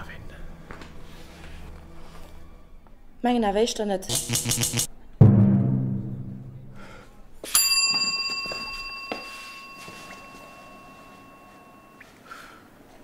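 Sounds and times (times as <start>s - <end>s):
small bell ringing: 7.5s - 12.0s.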